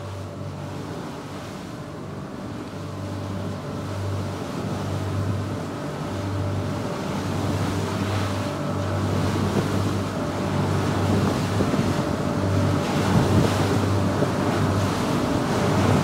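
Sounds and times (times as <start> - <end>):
motorboat engine drone: 0.0 - 16.0
water rushing along hull: 0.0 - 16.0
wind on microphone: 6.6 - 16.0.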